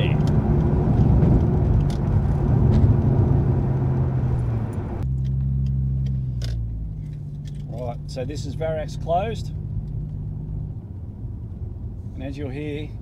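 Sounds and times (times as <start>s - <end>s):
car engine and exhaust cruising: 0.0s - 13.0s.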